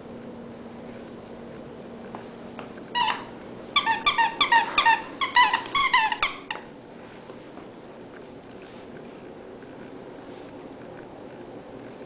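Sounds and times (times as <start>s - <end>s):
squeaky dog toy squeaking: 3.0s - 6.7s.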